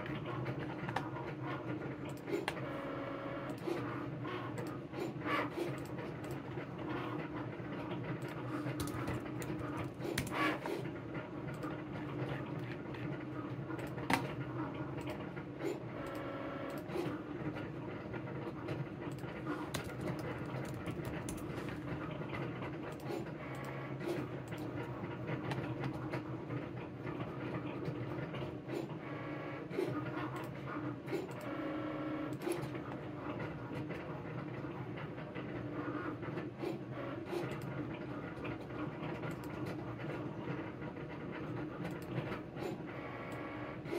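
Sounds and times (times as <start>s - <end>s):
printer motor whining: 0.1s - 14.4s, 41.3s - 43.9s.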